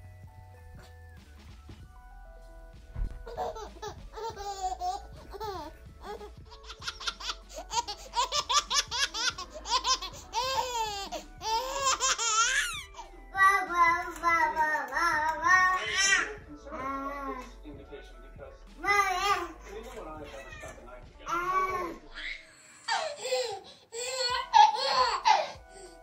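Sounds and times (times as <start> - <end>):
baby laughing: 3.2 - 17.5, 18.8 - 26.0
baby babbling: 3.3 - 17.5, 18.8 - 19.8, 21.3 - 25.9.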